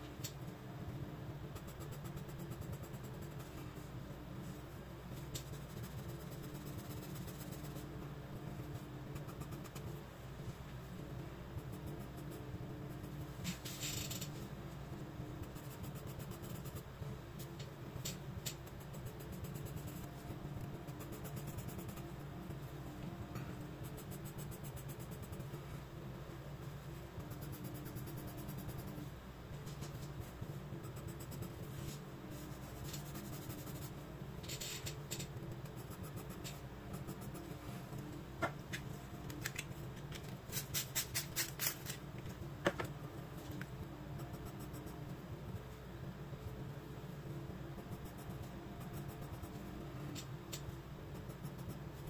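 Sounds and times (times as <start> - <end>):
steady low hum: 0.0 - 52.0
pencil scratching on paper: 5.4 - 7.9, 30.8 - 34.0.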